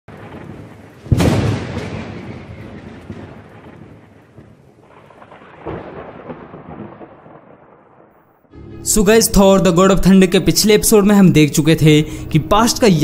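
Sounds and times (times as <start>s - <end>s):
thunderclap rolling: 0.1s - 8.5s.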